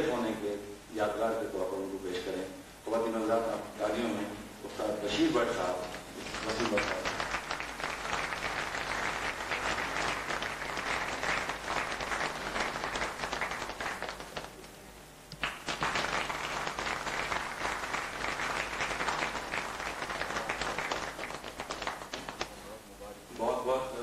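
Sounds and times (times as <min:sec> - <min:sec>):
audience applauding: 0:06.2 - 0:22.6.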